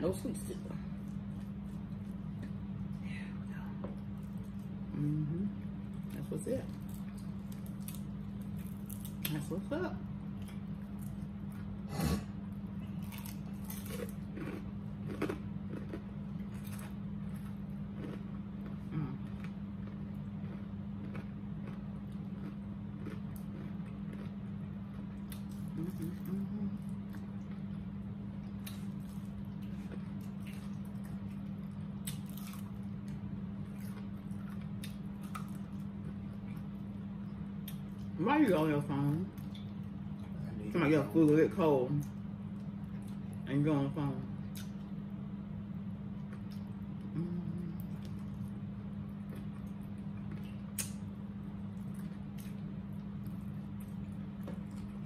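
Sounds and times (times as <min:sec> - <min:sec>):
steady low hum: 0:00.0 - 0:55.0
crunchy chewing: 0:10.3 - 0:38.2, 0:46.1 - 0:55.0.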